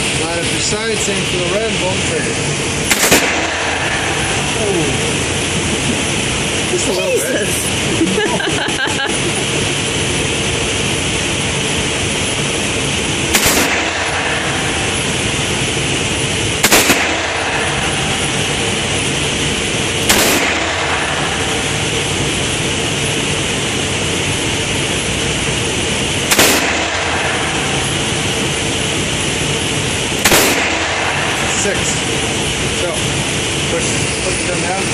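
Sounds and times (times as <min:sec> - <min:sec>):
steady rushing noise: 0:00.0 - 0:34.9
revolver gunshots with echo: 0:02.5 - 0:05.5, 0:13.1 - 0:24.8, 0:25.5 - 0:33.6.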